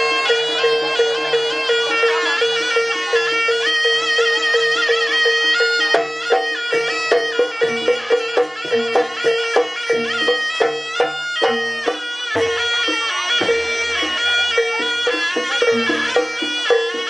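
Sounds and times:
reedy shawm melody: 0.0s - 17.0s
struck metal percussion and drum: 0.0s - 17.0s.

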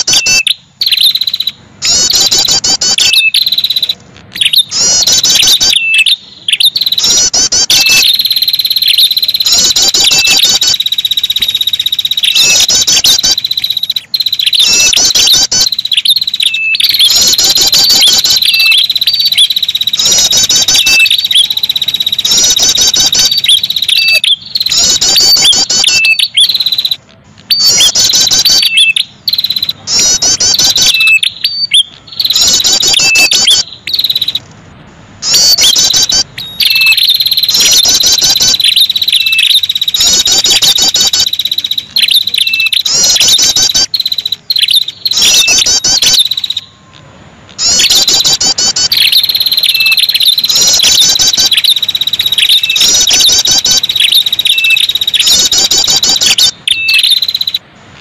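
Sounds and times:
rapid high bird chirping: 0.0s - 34.5s, 35.1s - 58.0s
high buzzing trill: 6.5s - 34.4s, 47.5s - 58.0s.

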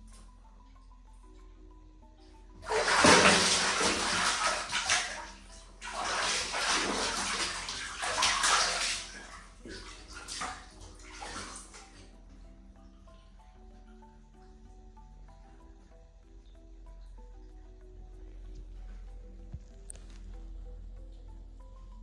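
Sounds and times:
water splashing in plastic basin: 2.6s - 12.0s.

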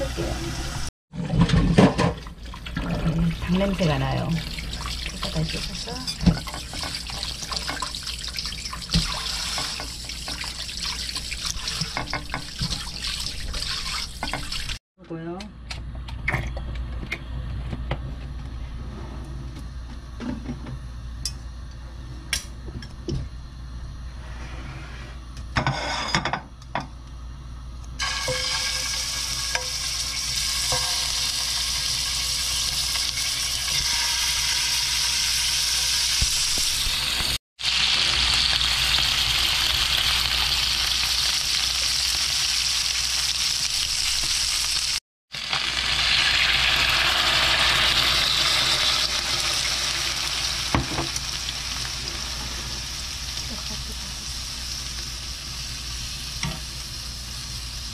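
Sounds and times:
chicken sizzling in hot oil: 3.5s - 14.8s, 28.0s - 57.9s
water poured into hot pan: 28.0s - 37.0s.

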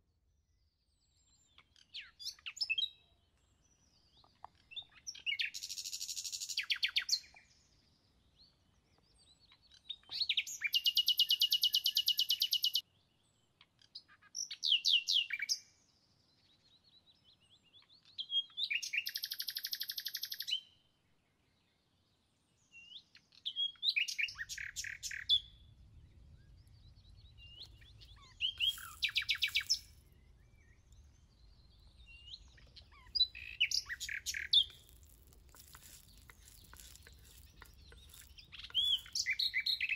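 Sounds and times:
songbird trilling: 27.4s - 30.0s, 31.8s - 39.9s.

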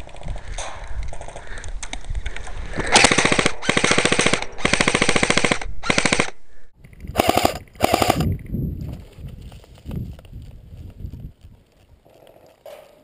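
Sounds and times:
airsoft gun full-auto bursts: 3.0s - 6.4s, 7.2s - 8.2s.

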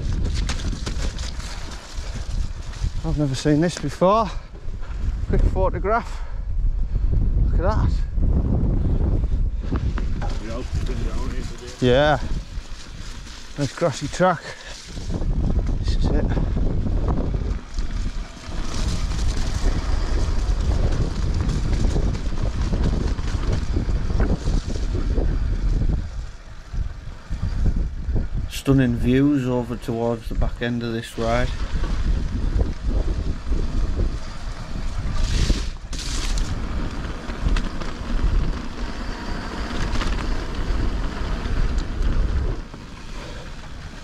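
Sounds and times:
bike rattling: 0.0s - 6.2s, 7.9s - 44.0s
bike tyres rumbling: 0.0s - 44.0s
wind buffeting microphone: 0.0s - 44.0s.

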